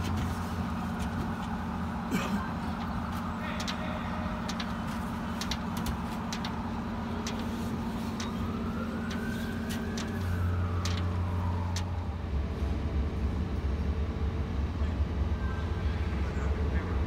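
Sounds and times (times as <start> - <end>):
heavy machinery low drone: 0.0 - 17.0
sharp clicks: 4.4 - 11.9.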